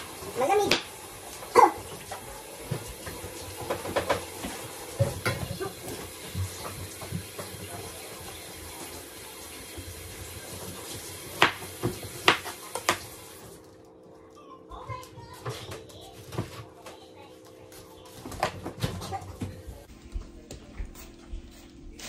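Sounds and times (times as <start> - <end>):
tap water running into sink: 0.0 - 13.6.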